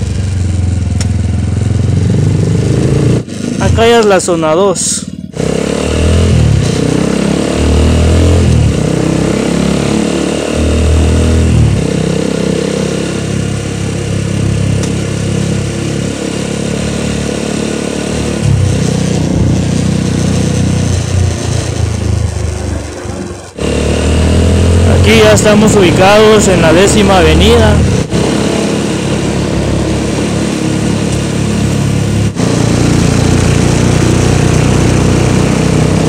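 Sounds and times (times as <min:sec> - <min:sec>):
motorcycle engine revving: 0:00.0 - 0:36.0.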